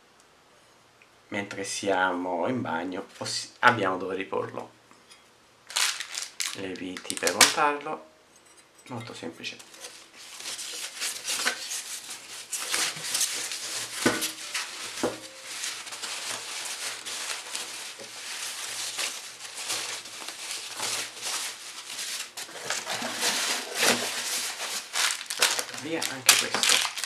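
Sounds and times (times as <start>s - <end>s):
plastic and paper wrapping rustling: 5.7s - 7.8s, 9.6s - 27.0s.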